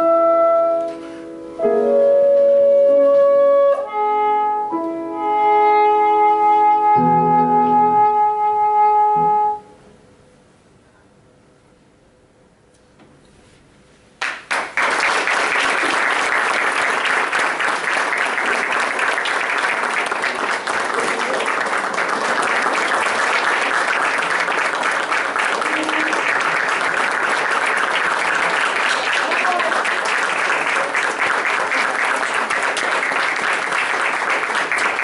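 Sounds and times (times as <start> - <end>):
audience applause: 14.2 - 35.0.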